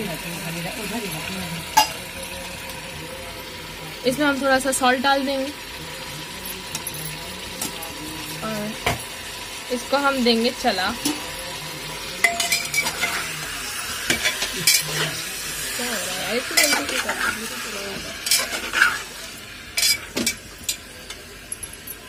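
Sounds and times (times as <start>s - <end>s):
frying sizzle: 0.0s - 22.0s
metal spatula scraping a pot: 12.3s - 13.4s, 14.1s - 15.2s, 16.1s - 20.4s.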